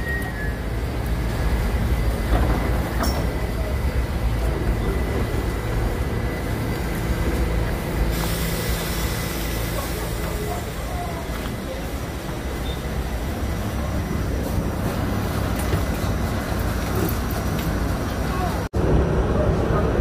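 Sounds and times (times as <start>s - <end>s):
subway train low rumble: 0.0s - 20.0s
hiss: 8.0s - 11.2s.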